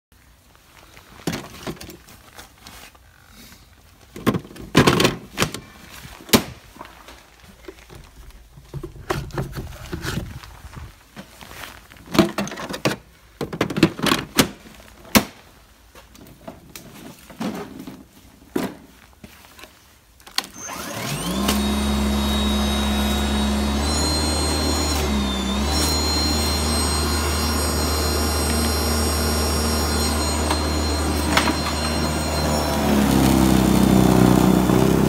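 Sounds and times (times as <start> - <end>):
rustling: 5.6 - 12.2.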